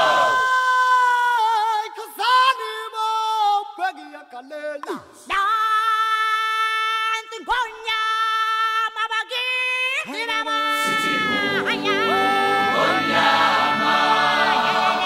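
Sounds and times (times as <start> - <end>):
unaccompanied singing: 10.1 - 15.0.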